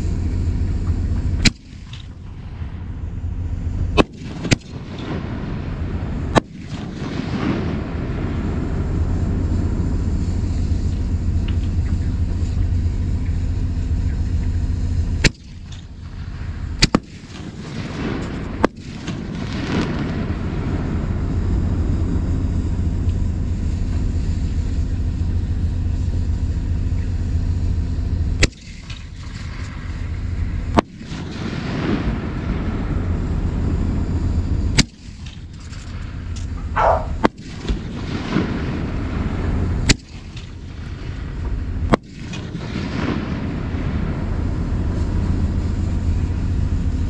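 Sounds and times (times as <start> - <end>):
fireworks crackle: 0.0 - 47.0
steady low rumble: 0.0 - 47.0
fireworks shells bursting: 34.7 - 43.6.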